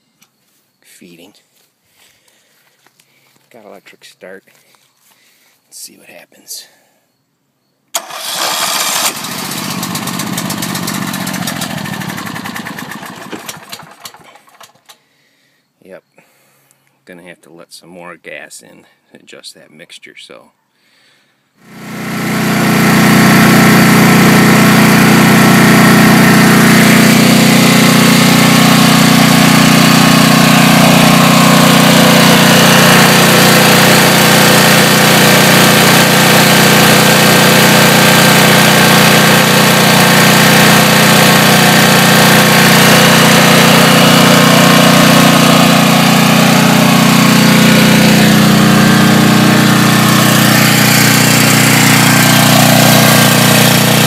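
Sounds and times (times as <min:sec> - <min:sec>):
generator engine running: 0:08.0 - 0:15.0, 0:21.6 - 0:54.0.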